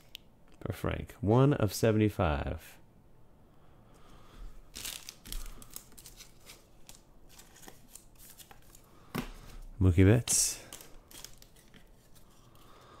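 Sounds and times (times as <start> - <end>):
plastic wrapper crinkling: 4.7 - 8.9, 10.5 - 12.6
cards being handled: 4.7 - 9.6, 10.3 - 13.0.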